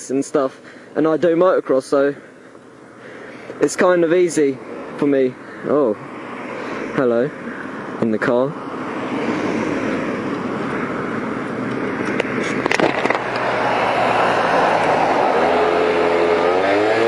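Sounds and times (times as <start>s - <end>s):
wind rushing over microphone: 5.8s - 17.0s
moped engine running: 9.9s - 17.0s.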